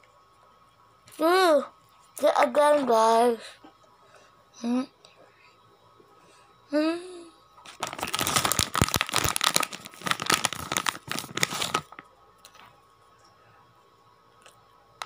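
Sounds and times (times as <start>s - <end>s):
crinkling of crumpled material: 7.6s - 12.7s.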